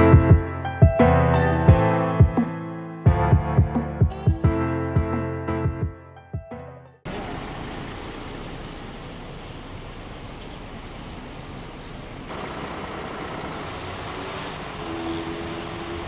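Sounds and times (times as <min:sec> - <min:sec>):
traffic noise of coaches and cars: 0:07.1 - 0:16.0.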